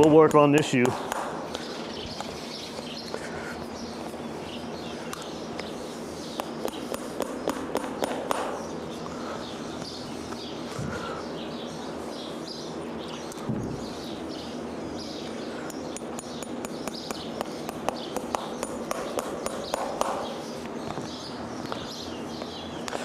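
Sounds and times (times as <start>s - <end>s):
birds chirping faintly: 0.0s - 23.0s
hammer tapping nail: 6.4s - 8.6s, 16.0s - 20.4s.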